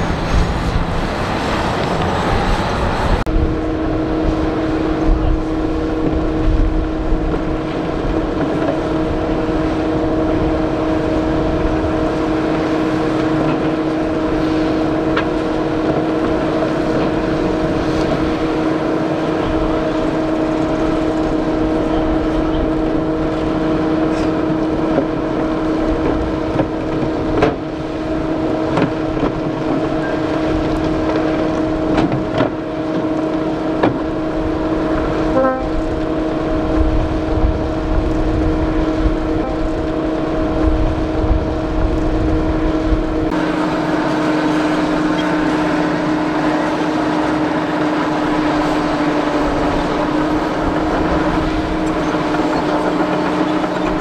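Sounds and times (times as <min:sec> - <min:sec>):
rumbling haze: 0:00.0 - 0:54.0
motors humming: 0:43.3 - 0:54.0.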